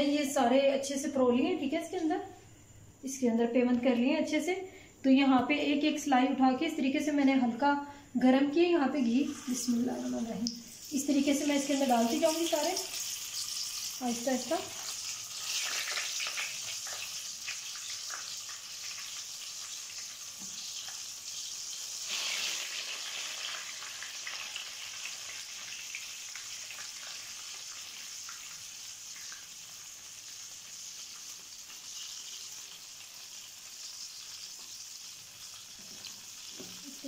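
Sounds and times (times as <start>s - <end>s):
food sizzling in a frying pan: 8.9s - 37.0s.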